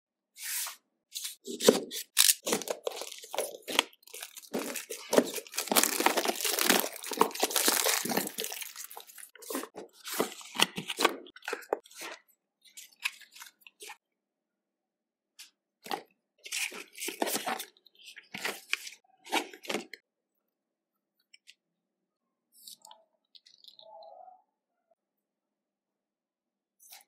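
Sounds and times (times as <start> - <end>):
packaging rustling and tearing: 1.6 - 11.8
cardboard box clicks and crinkling: 2.2 - 11.7.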